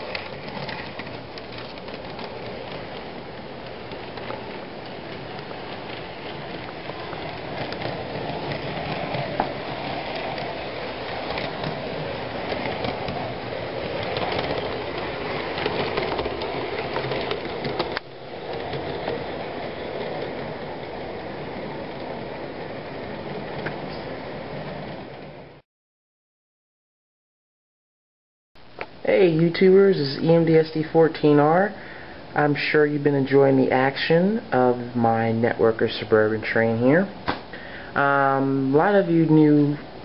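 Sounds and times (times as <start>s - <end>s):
model electric train running: 0.0s - 25.5s
wheels clicking on rails: 0.0s - 25.6s.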